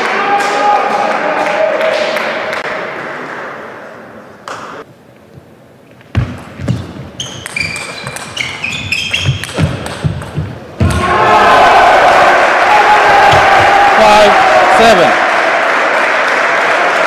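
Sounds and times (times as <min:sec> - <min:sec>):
shoes squeaking on floor: 0:06.6 - 0:10.6.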